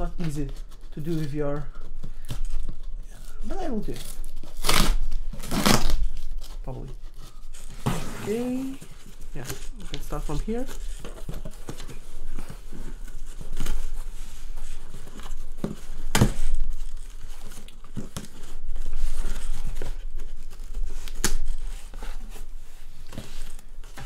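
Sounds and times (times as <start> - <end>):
tape and cardboard tearing: 3.9 - 6.2.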